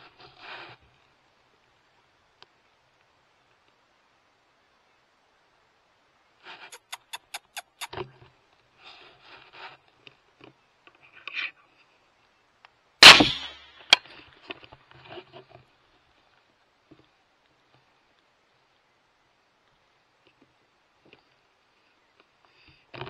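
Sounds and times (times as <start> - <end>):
rustles: 0.0 - 23.0
rifle shot: 13.0 - 13.8
sharp crack: 13.0 - 14.0.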